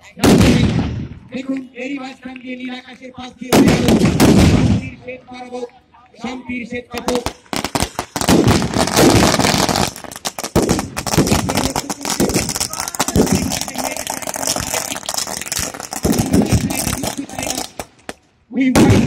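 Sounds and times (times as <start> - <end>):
firecrackers cracking and banging: 3.5 - 4.9, 7.0 - 19.0.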